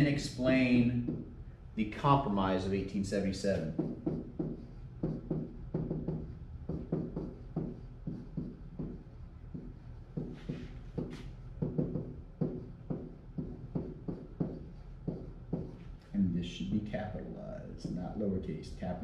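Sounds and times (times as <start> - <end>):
soft rhythmic knocks: 1.0 - 1.4, 3.6 - 15.9, 17.5 - 18.3.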